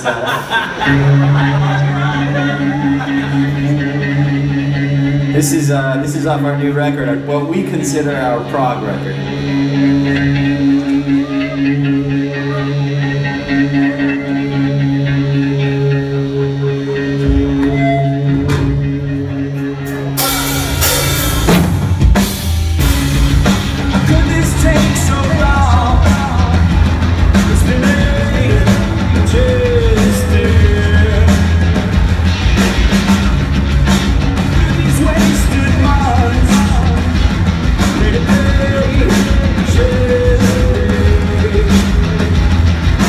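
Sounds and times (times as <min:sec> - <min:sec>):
bass guitar: 0:00.0 - 0:43.0
electric guitar: 0:00.0 - 0:43.0
drum kit crashing: 0:20.0 - 0:43.0.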